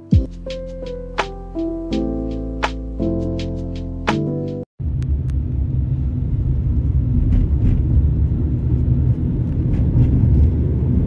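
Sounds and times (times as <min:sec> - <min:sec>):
city traffic rumble: 0:04.8 - 0:11.0.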